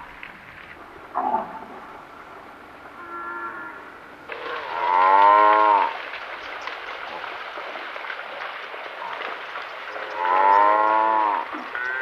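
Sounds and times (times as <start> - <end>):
buffalo calling: 1.2 - 1.8, 3.0 - 5.9.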